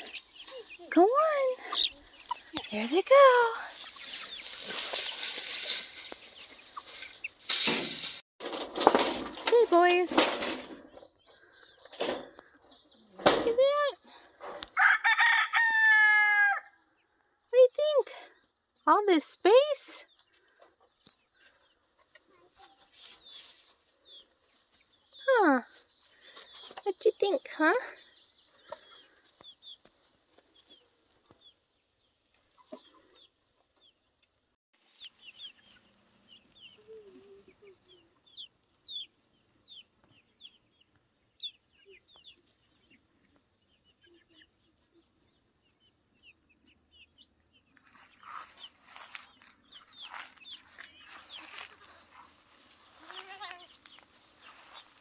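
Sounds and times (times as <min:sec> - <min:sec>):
chicks clucking: 0:00.0 - 0:07.4, 0:27.7 - 0:55.0
chicks peeping: 0:00.0 - 0:07.4, 0:28.0 - 0:55.0
rustling through grass: 0:02.8 - 0:08.2, 0:22.6 - 0:24.6, 0:47.8 - 0:55.0.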